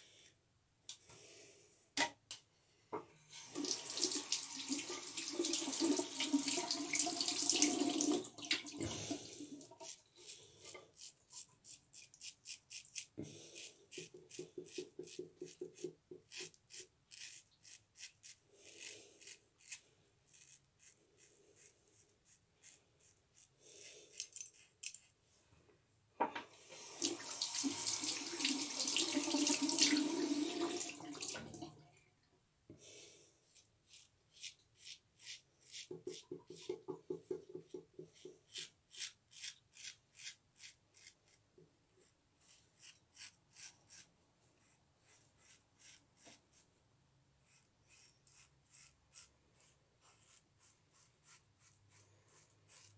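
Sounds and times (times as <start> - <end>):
razor scraping beard stubble: 9.8 - 25.2, 33.5 - 36.8, 37.7 - 41.4, 42.0 - 46.6, 47.4 - 52.9.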